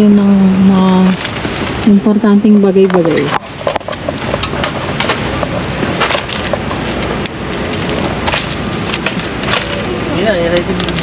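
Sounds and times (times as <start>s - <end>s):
steady rushing noise: 0.0s - 11.0s
groceries knocking and rattling: 2.8s - 11.0s.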